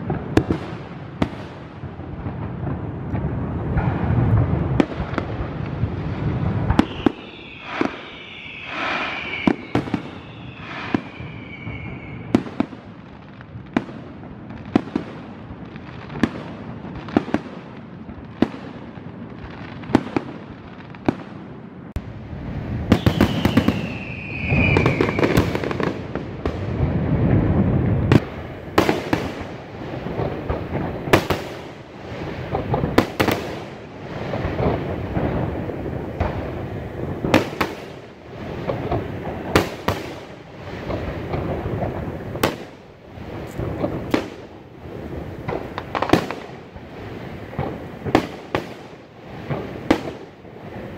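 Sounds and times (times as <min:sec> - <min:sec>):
firework whistles: 0:06.2 - 0:13.2, 0:22.4 - 0:29.6.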